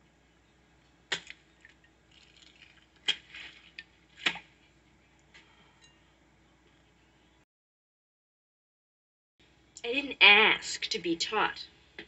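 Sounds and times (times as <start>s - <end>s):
eggs cracking on bowl: 1.1s - 4.4s.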